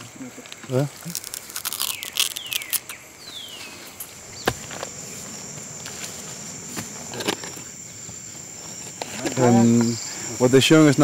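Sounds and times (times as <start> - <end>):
insects droning: 0.0 - 11.0
sugarcane being chewed: 0.5 - 3.0.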